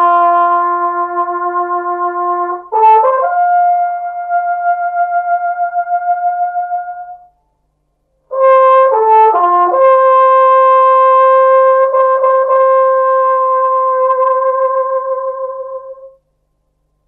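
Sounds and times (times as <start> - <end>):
brass instrument playing: 0.0 - 7.3, 8.3 - 16.2.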